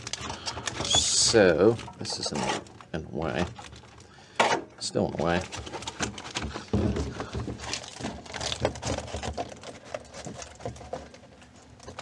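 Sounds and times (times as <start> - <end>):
foil mat crinkling: 0.0 - 4.2, 4.8 - 12.0.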